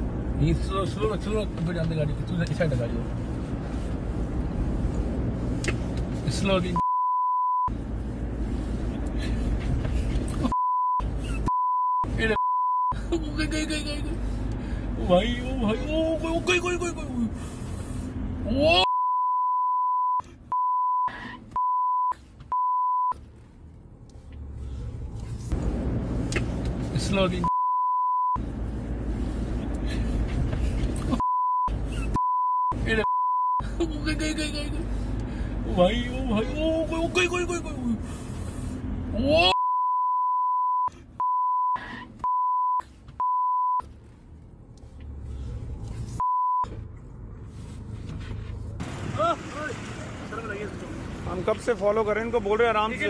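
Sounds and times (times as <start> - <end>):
car road rumble: 0.0 - 53.0
censor bleep tone: 6.8 - 7.7, 18.8 - 23.2, 27.5 - 28.4, 39.5 - 43.8, 46.2 - 46.7.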